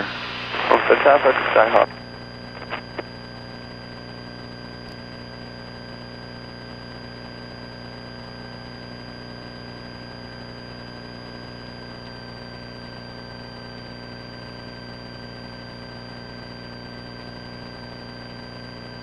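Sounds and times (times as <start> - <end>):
thin high whine: 0.0 - 4.8.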